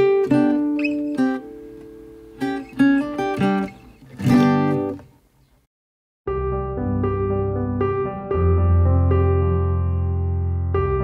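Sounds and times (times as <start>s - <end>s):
acoustic guitar music: 0.0s - 5.3s.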